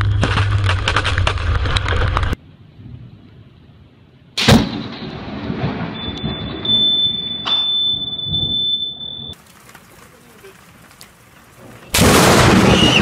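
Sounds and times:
thunder cracking and rumbling: 4.4 - 7.4, 11.6 - 13.0.

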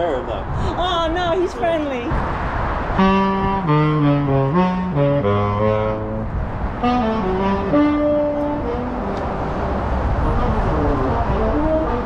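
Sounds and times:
saxophone slow melody: 2.9 - 12.0.

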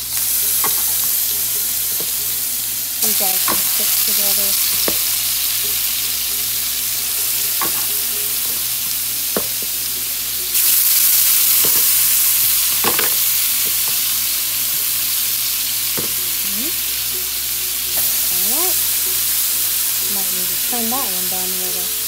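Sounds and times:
chicken sizzling in oil: 0.0 - 22.0
metal tongs clicking on pan: 0.6 - 1.0, 3.3 - 5.0, 7.5 - 8.6, 12.8 - 14.0.

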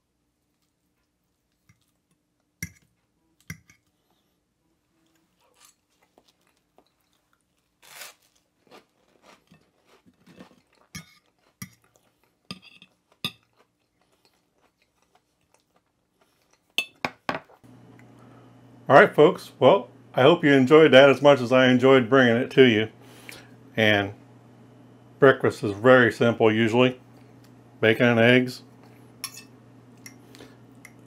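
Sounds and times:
crunchy chewing: 5.0 - 16.8.

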